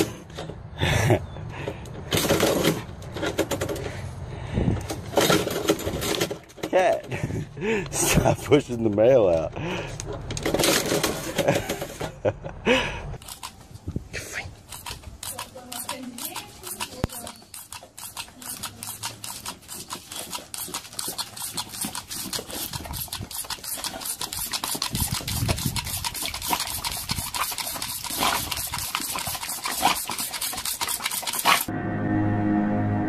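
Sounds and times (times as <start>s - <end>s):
water sprayer squirts: 14.2s - 31.7s
music: 31.7s - 33.0s.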